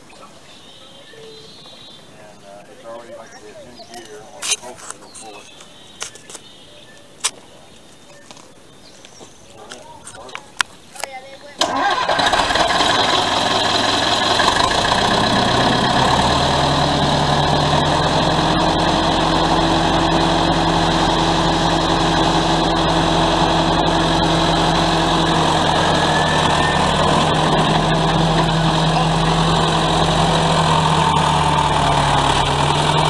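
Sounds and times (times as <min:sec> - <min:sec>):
diesel bulldozer engine idling: 0:11.6 - 0:33.0.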